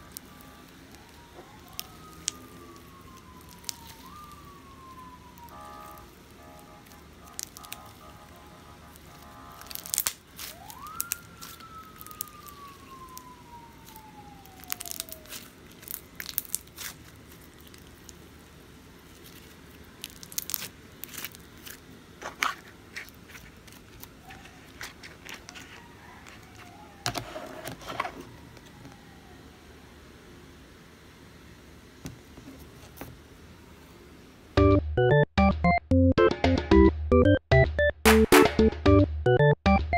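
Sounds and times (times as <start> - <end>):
slime clicking and popping: 0.9 - 4.4, 5.4 - 6.1, 6.8 - 8.1, 8.9 - 18.2, 19.2 - 21.8.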